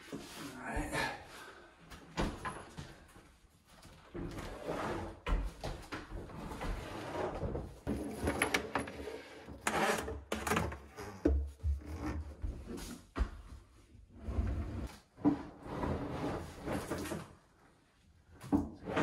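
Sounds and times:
hoses and cord pulled through cabinet: 6.2s - 12.4s
dishwasher scraping and rubbing: 6.5s - 12.9s, 14.2s - 17.2s.

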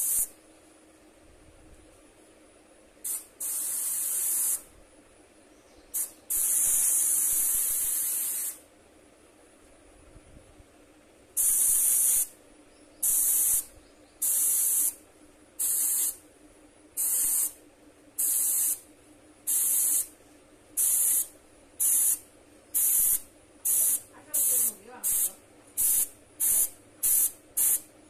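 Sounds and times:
airbrush spraying hiss: 0.0s - 0.4s, 3.0s - 4.7s, 5.9s - 8.6s, 11.4s - 12.4s, 13.0s - 15.0s, 15.6s - 16.2s, 17.0s - 17.6s, 18.2s - 18.9s, 19.5s - 20.2s, 20.8s - 27.9s.

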